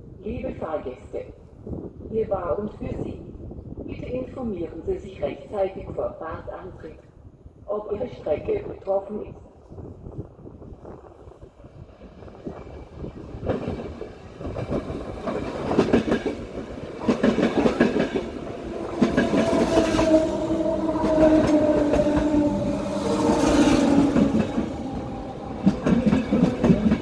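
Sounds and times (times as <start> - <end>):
train wheels clattering on rails: 13.4 - 27.0.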